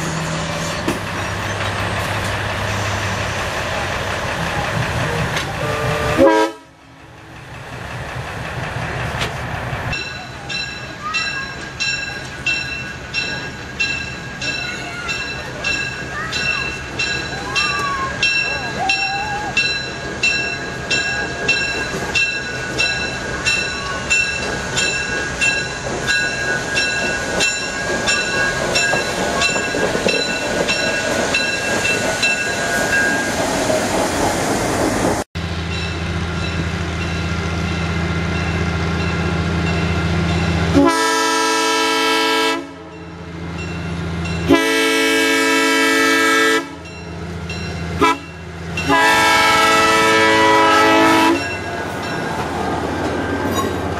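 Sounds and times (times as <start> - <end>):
locomotive bell ringing: 0.1 - 2.4, 9.9 - 33.4, 35.6 - 42.2, 42.8 - 53.9
train horn blasts: 5.5 - 6.9, 40.7 - 42.9, 44.4 - 46.9, 48.0 - 51.5.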